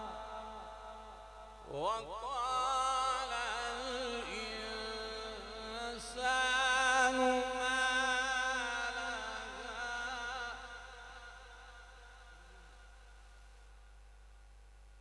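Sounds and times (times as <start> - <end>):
man reciting melodically: 0.0 - 13.1.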